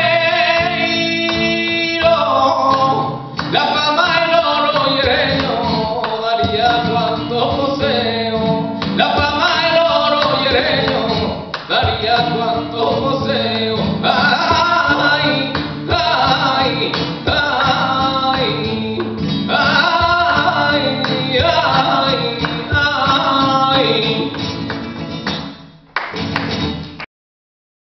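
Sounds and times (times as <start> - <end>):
man singing flamenco: 0.0 - 25.5
flamenco guitar: 0.0 - 27.0
hand-clapping: 0.6 - 2.1, 3.3 - 6.9, 8.8 - 12.4, 14.3 - 19.2, 19.8 - 27.1.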